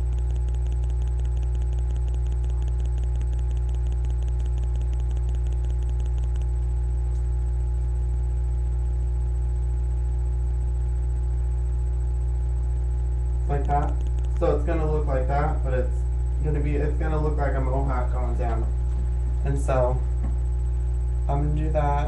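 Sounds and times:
faint steady tones: 0:00.0 - 0:06.6, 0:13.4 - 0:19.9
fast even ticking: 0:00.0 - 0:06.6, 0:13.5 - 0:14.8
low electrical hum: 0:00.0 - 0:22.0.

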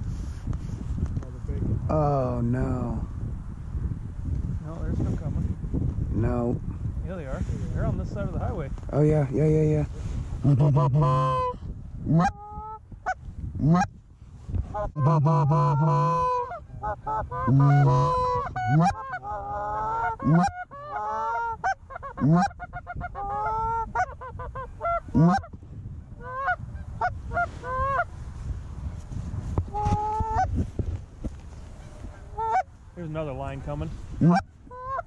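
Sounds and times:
geese honking: 0:10.4 - 0:12.8, 0:14.7 - 0:25.6, 0:26.2 - 0:28.1, 0:31.8 - 0:32.7, 0:34.2 - 0:35.0
goose low drawn-out moans: 0:10.4 - 0:12.8, 0:14.7 - 0:25.6, 0:29.6 - 0:30.5, 0:34.2 - 0:35.0.

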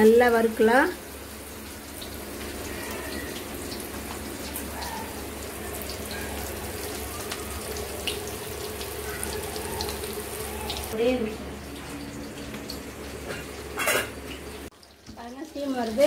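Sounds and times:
fish sizzling in hot oil: 0:00.0 - 0:16.0
oil crackling and popping: 0:01.7 - 0:11.0.

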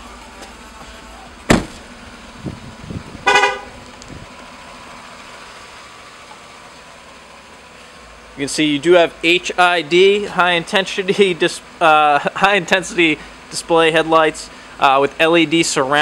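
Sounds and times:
car door slamming: 0:01.4 - 0:02.0
car horn beep: 0:03.2 - 0:03.8.

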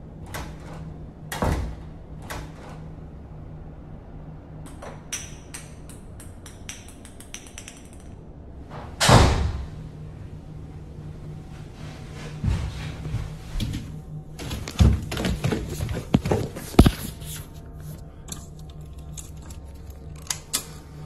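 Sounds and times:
low steady hum: 0:00.0 - 0:21.0
loud bang: 0:08.7 - 0:10.0.

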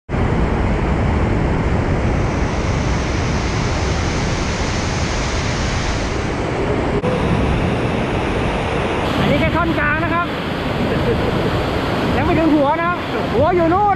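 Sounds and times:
waterfall rushing over rocks: 0:03.4 - 0:13.9.

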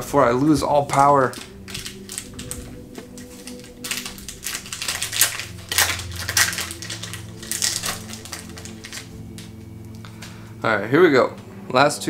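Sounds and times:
foil wrapper tearing and crinkling: 0:00.8 - 0:09.6.

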